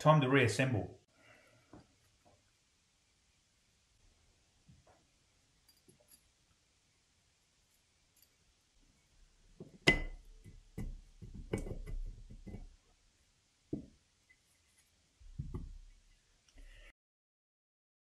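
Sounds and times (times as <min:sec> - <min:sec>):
metallic clink with ring: 0:05.6 - 0:06.3, 0:08.1 - 0:08.4.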